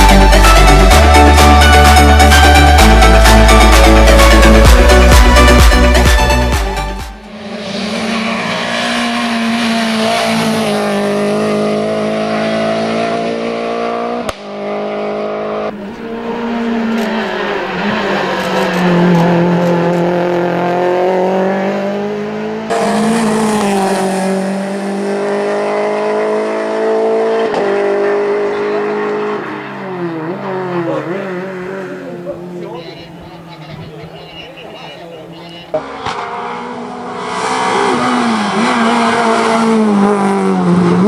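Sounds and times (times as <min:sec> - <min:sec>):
car engine accelerating hard: 0:07.2 - 0:34.1, 0:35.7 - 0:41.0.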